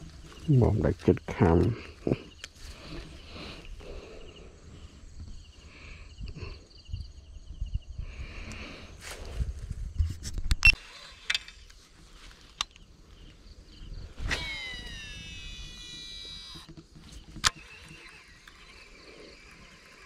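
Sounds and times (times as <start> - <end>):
insects chirping: 0.0 - 10.1, 10.7 - 20.0
wind rumble on microphone: 4.8 - 10.7.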